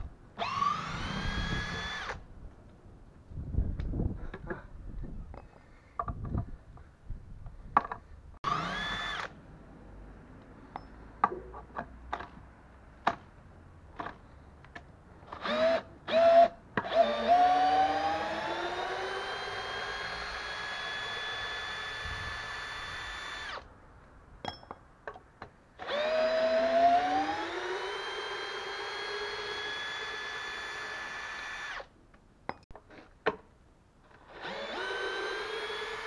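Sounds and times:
cordless drill motor whining: 0.4 - 2.2, 8.4 - 9.3, 15.3 - 23.6, 25.8 - 31.9, 34.2 - 36.0.

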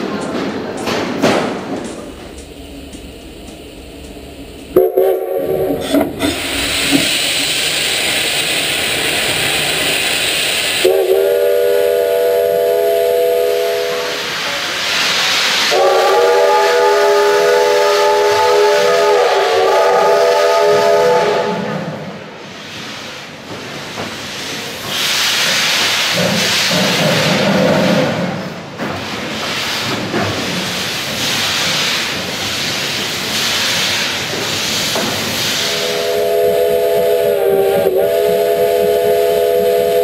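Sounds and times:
steam hissing: 1.5 - 40.0
steam locomotive chime whistle: 4.7 - 5.7, 10.8 - 14.3, 15.7 - 21.9, 35.6 - 40.0.

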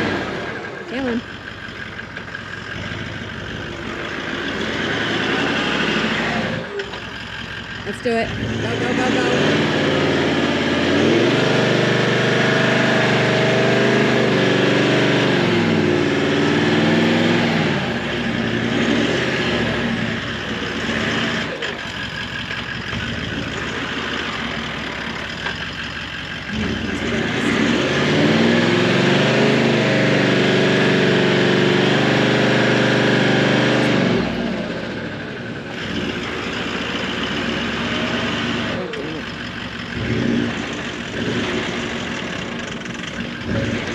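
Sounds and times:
engine revving under strain: 0.0 - 1.3, 2.2 - 43.9.

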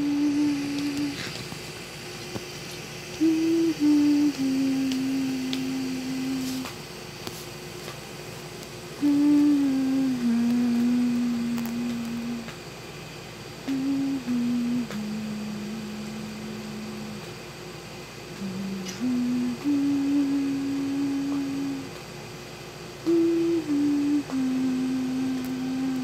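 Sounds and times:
person humming a lullaby: 0.0 - 1.5, 3.2 - 6.8, 9.0 - 12.6, 13.6 - 17.4, 18.3 - 22.0, 23.0 - 26.0.

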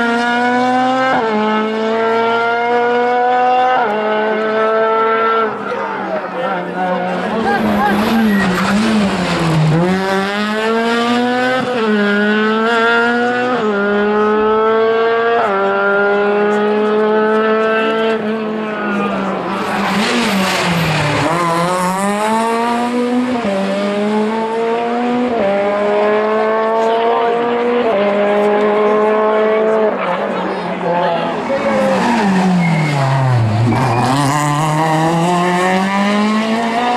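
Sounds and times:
rally car engines accelerating: 0.0 - 36.9.

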